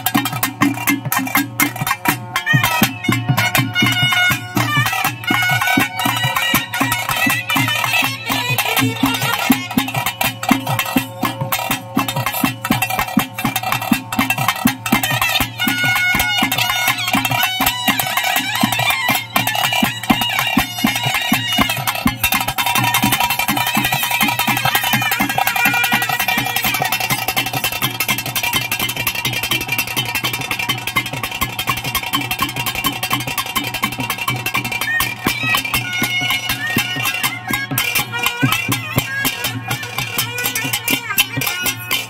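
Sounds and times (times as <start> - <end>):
fast continuous drumming: 0.0 - 42.0
reed pipe melody: 1.8 - 29.2.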